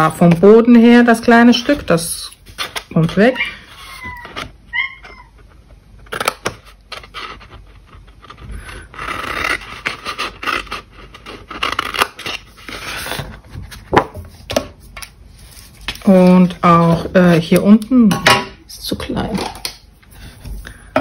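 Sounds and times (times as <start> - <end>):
paper rustling: 6.3 - 17.6
scissors cutting cardstock: 8.9 - 13.2.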